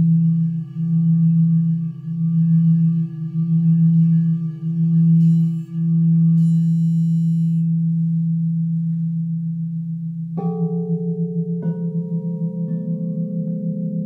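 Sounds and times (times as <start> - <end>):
crystal singing bowls ringing: 0.0 - 14.0.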